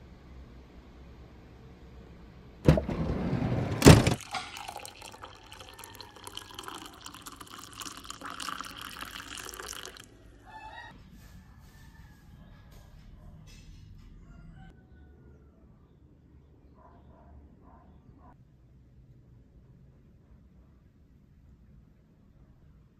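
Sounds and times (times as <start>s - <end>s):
coffee pouring into glass mug: 4.1s - 10.2s
faint drips: 4.2s - 10.3s.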